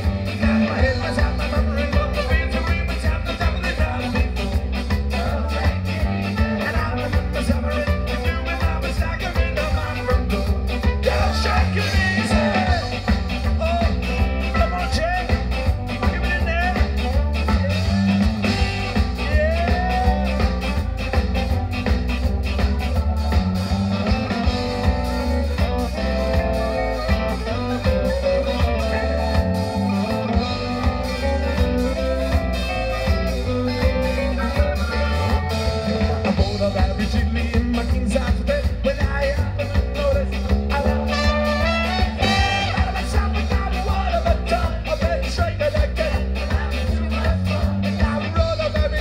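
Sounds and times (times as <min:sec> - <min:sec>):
live ska band playing: 0:00.0 - 0:49.0.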